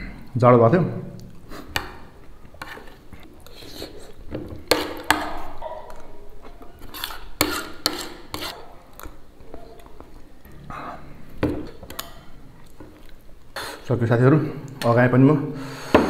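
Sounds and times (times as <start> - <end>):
chewing: 1.2 - 13.8.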